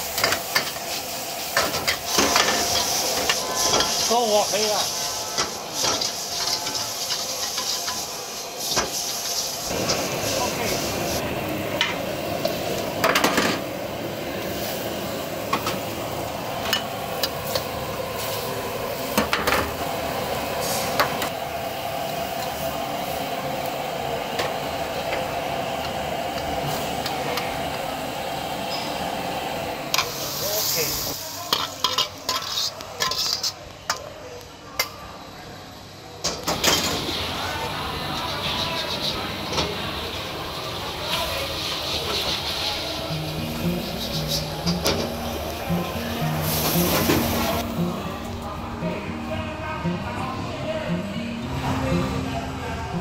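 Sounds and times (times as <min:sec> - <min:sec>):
frying in a wok: 0:00.0 - 0:48.4
metal spatula scraping a wok: 0:31.5 - 0:33.6.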